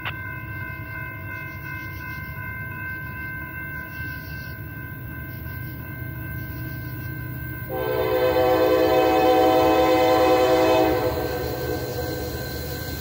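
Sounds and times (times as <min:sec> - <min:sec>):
crossing bell ringing: 0:00.0 - 0:13.0
locomotive air horn blast: 0:07.7 - 0:13.0.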